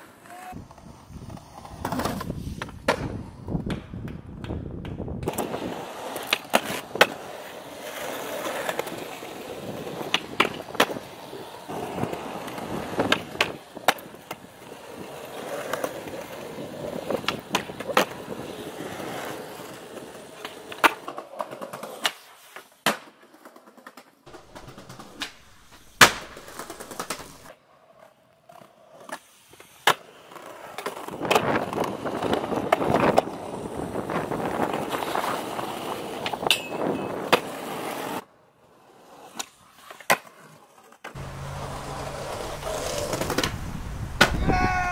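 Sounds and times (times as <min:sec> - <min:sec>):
skateboard clacks: 0:00.0 - 0:44.9
skateboard wheels rolling on concrete: 0:00.0 - 0:44.9.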